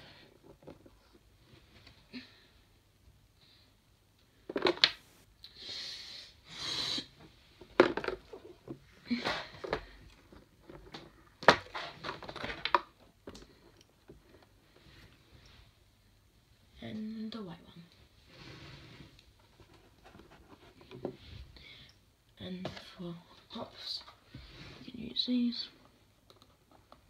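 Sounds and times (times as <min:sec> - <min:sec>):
plastic toy figures knocking and clicking: 0:07.6 - 0:08.4.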